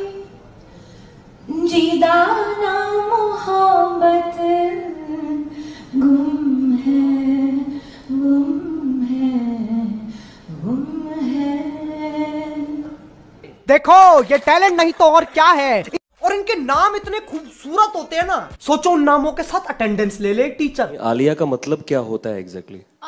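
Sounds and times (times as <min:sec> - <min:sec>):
woman singing into microphone: 0:01.4 - 0:13.1.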